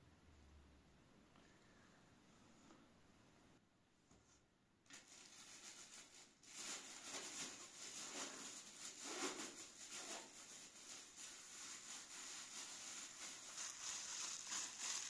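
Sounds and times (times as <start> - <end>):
plastic gloves crinkling: 4.9 - 15.0.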